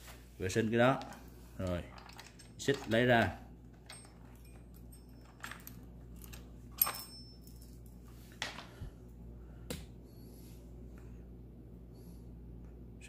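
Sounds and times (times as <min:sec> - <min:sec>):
chainsaw chain clinking: 0:01.0 - 0:08.0.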